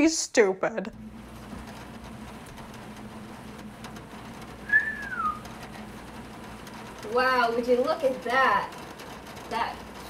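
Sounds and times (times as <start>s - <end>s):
low hum: 0.9s - 7.2s
person whistling descending note: 4.7s - 5.4s.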